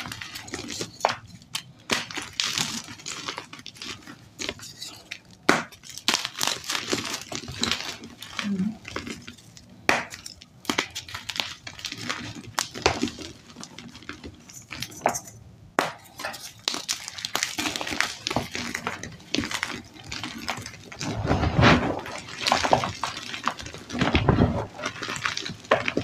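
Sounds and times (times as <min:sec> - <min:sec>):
chalk blocks crunching: 0:00.0 - 0:26.0.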